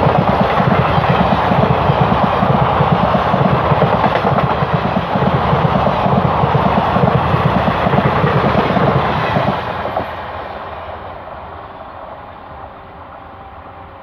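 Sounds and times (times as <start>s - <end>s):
train wheels clattering on rail: 0.0s - 10.4s.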